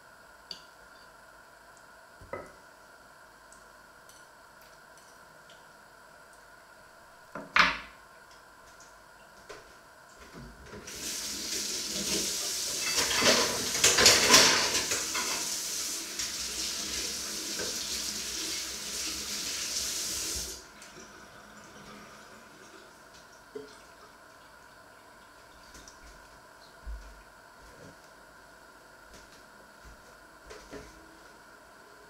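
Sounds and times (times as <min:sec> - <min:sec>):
tap water running into sink: 0:10.8 - 0:20.6.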